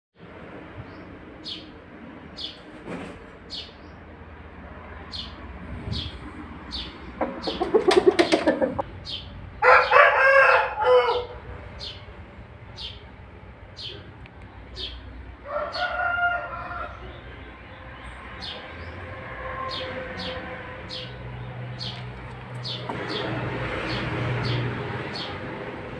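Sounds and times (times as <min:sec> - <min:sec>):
rooster crowing: 0:09.6 - 0:11.4, 0:15.4 - 0:17.2.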